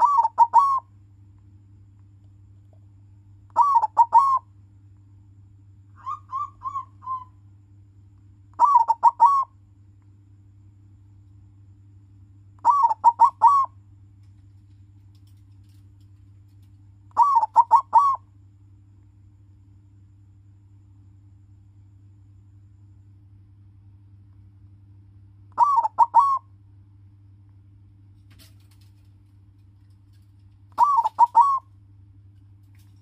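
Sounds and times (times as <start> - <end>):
dove cooing: 0.0 - 0.9, 3.5 - 4.4, 6.0 - 7.4, 8.6 - 9.5, 12.6 - 13.8, 17.1 - 18.2, 25.6 - 26.4, 30.7 - 31.7.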